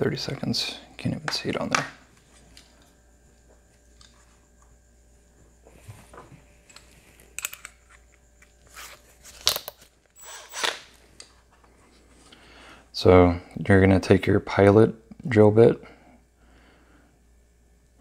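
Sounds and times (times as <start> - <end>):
small tools clicking and scraping: 6.7 - 10.8.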